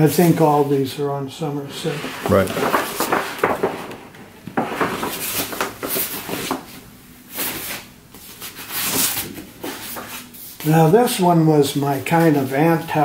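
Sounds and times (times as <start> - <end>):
paper sheets rustling and sliding: 1.7 - 11.0.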